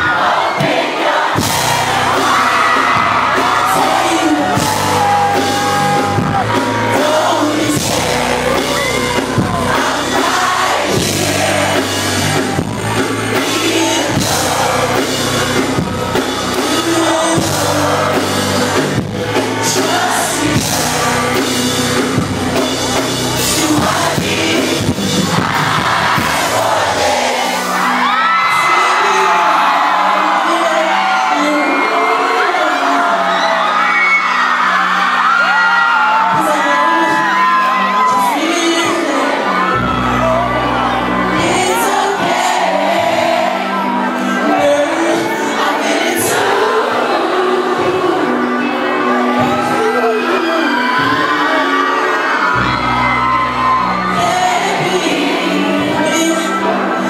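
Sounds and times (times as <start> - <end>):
live band music: 0.0 - 33.9, 34.7 - 57.0
fans yelling and whooping: 0.0 - 57.0
person singing: 0.0 - 57.0.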